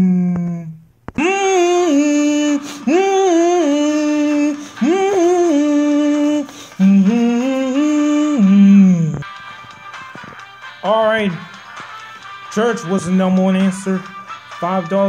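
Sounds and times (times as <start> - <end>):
person singing: 0.0 - 9.3.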